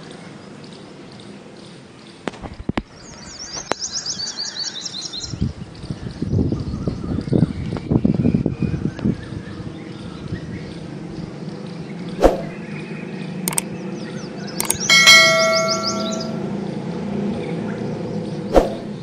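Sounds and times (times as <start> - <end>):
mouse clicks: 14.6 - 14.9
bell-like notification ding: 14.6 - 16.6.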